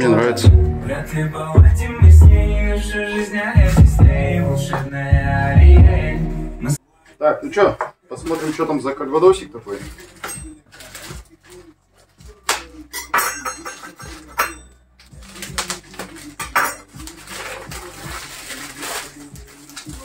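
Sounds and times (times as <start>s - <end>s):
paper packaging crinkling: 8.1s - 12.8s, 14.0s - 20.0s.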